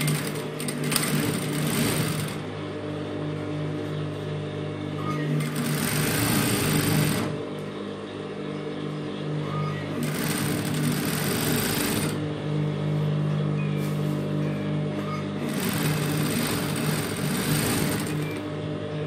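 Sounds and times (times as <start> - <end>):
sewing machine stitching: 0.0 - 2.4, 5.4 - 7.4, 10.0 - 12.2, 15.4 - 18.4
steady low hum: 0.0 - 19.0.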